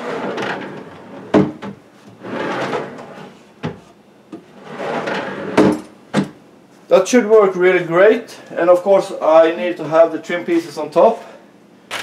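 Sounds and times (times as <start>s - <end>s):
drawer sliding on metal runners: 0.0s - 5.9s.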